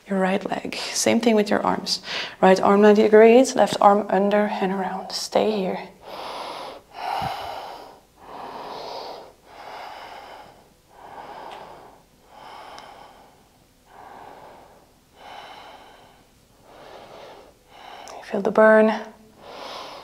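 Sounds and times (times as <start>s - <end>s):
woman breathing deeply: 2.0s - 2.4s, 5.9s - 18.3s, 19.2s - 20.0s.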